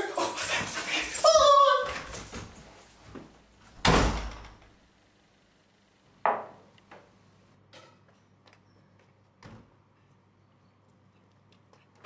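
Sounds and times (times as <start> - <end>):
door slamming shut: 3.8 - 4.6.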